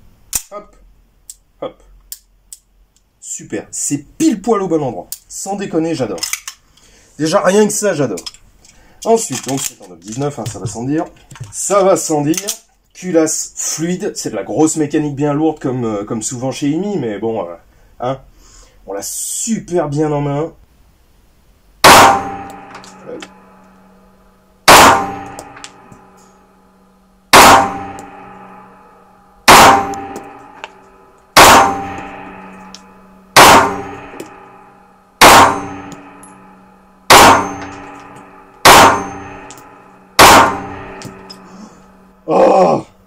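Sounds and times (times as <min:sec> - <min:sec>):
pistol shots echoing indoors: 0:21.8 - 0:23.7, 0:24.7 - 0:26.2, 0:27.3 - 0:28.8, 0:29.4 - 0:41.4.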